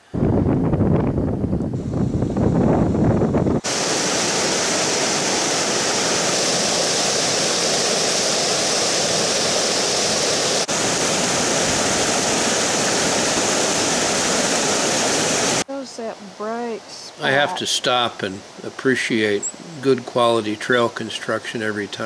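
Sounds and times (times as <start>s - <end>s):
stream rushing over boulders: 3.6s - 15.6s, 17.2s - 21.4s.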